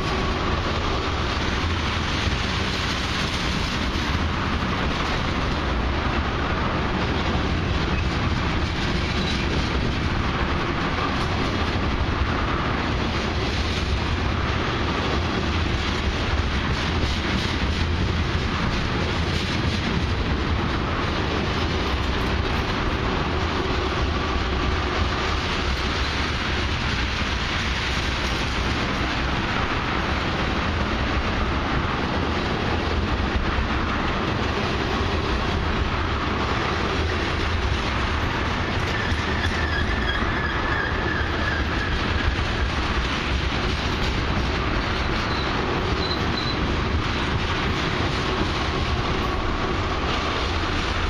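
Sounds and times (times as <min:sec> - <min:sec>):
train wheels rumbling and clacking: 0:00.0 - 0:51.0
high wheel squeal: 0:38.9 - 0:42.2, 0:45.2 - 0:46.6.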